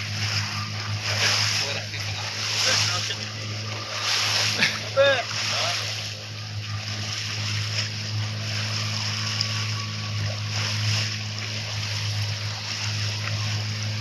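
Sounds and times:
boat engine humming: 0.0 - 14.0
water splashing along hull: 0.0 - 14.0.

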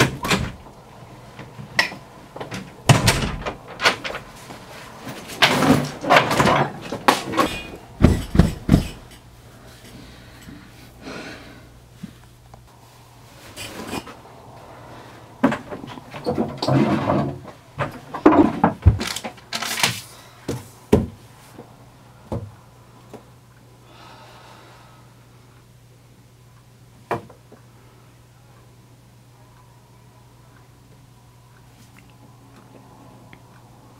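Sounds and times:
bedding and clothing rustling: 0.0 - 11.1
low hum: 0.0 - 16.6
wooden knocks and thuds: 5.4 - 9.1, 20.5 - 21.2.

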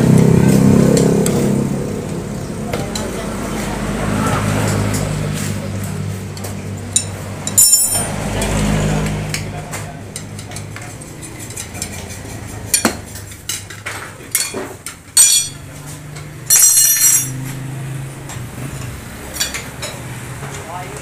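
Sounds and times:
ringing metal clatter: 7.0 - 8.2, 15.2 - 15.7, 16.4 - 17.6.

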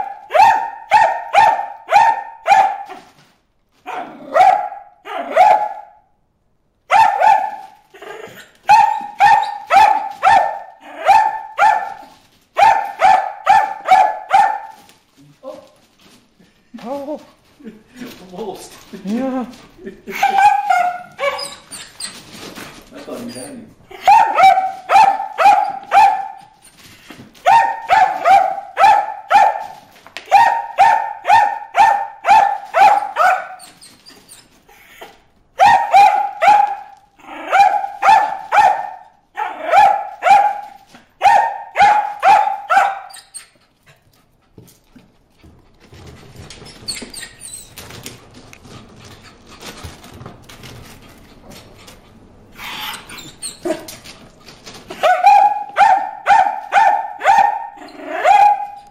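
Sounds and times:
dog barking: 0.0 - 3.1, 3.9 - 6.0, 6.9 - 7.8, 8.6 - 14.9, 20.1 - 21.6, 24.0 - 26.6, 27.4 - 33.7, 35.6 - 43.3, 55.0 - 58.9
faint rustling: 7.2 - 39.2.

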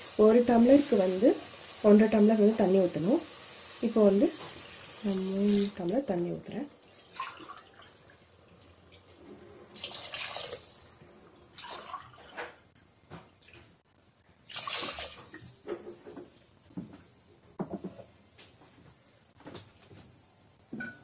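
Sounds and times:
water pouring into a pot: 0.0 - 8.8, 9.7 - 12.2, 14.4 - 15.6.

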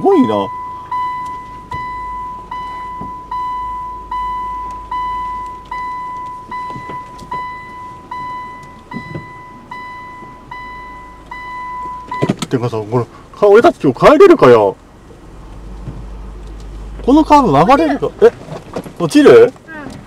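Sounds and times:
car warning chime beeping: 0.0 - 12.8
engine rumble: 0.0 - 20.0.

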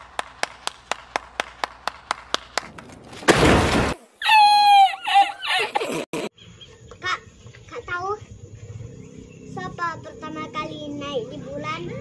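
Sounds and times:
person hand-clapping: 0.0 - 2.9.

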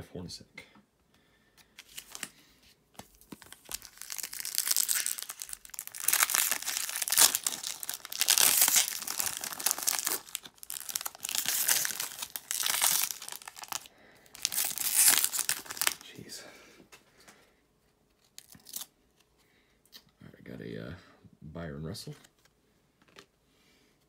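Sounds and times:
foil wrapper crinkling and tearing: 3.0 - 16.1, 18.2 - 18.9.

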